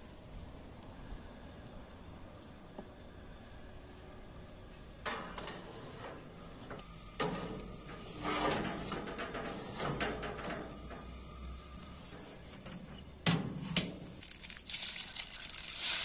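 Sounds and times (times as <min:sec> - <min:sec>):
metal tray scraping oven rack: 0:07.2 - 0:10.8.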